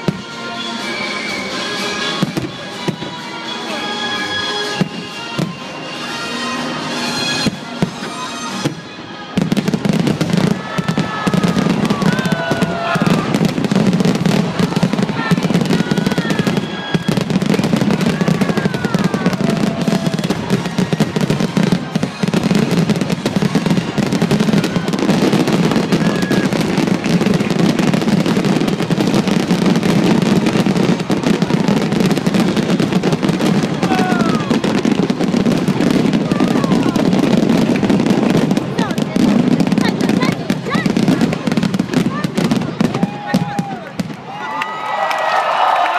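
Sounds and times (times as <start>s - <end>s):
music: 0.0s - 27.6s
fireworks bursts and crackling: 0.0s - 45.9s.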